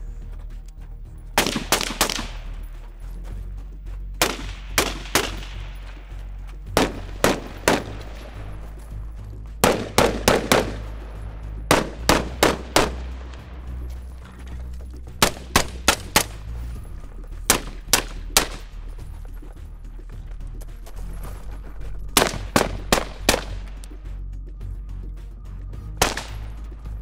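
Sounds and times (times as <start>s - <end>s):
rifle shots: 1.4s - 2.6s, 4.2s - 6.0s, 6.7s - 8.5s, 9.6s - 13.4s, 15.2s - 16.4s, 17.5s - 18.7s, 22.2s - 23.8s, 26.0s - 26.6s.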